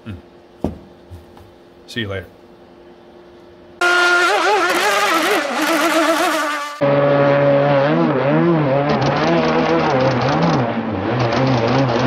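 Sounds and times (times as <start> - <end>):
model boat motor buzzing: 3.8 - 6.9
lower-pitched motor: 3.8 - 12.0.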